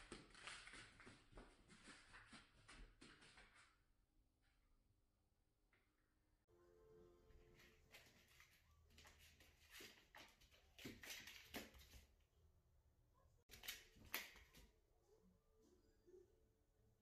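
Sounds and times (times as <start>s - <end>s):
kitten paws scuffling on floor: 7.6s - 12.1s.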